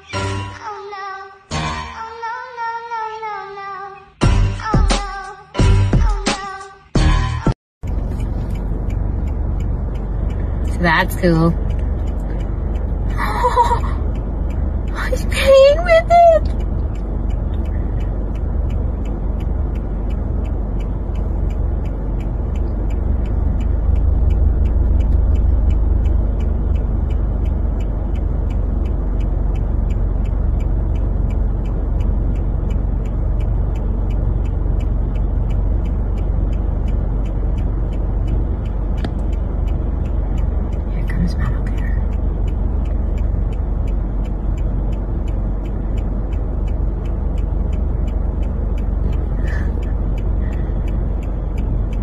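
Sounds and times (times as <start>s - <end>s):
car cabin rumble: 7.8s - 52.0s
quick ticking: 7.8s - 52.0s
sharp click: 38.9s - 39.4s.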